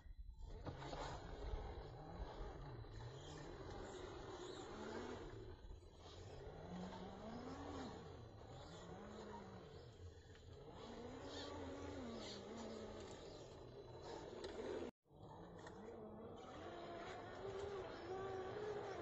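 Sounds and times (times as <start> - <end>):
electric motor and gears whining: 0.2 - 19.0.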